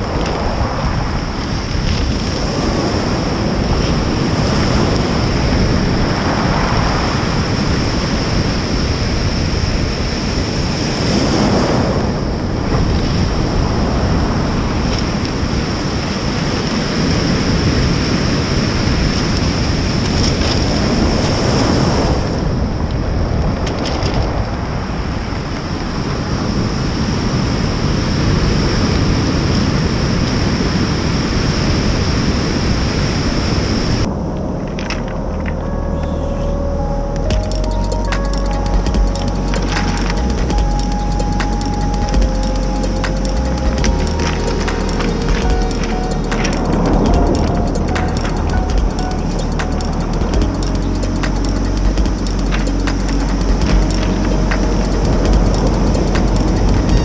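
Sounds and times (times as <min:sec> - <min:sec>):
wind buffeting microphone: 0:00.0 - 0:35.4
waves breaking on stony beach: 0:00.1 - 0:22.4.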